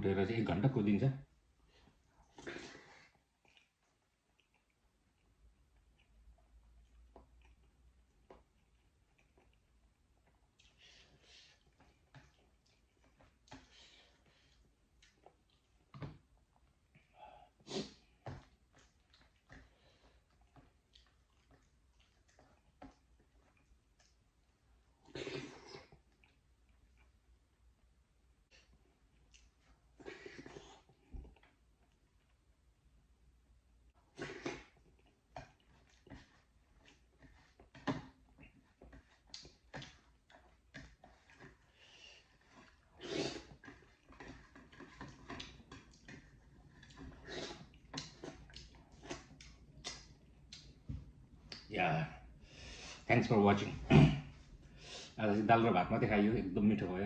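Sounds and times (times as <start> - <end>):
chewing sounds: 1.7 - 27.6, 28.5 - 32.5, 33.9 - 51.7
fingers mixing wet food: 34.0 - 51.8.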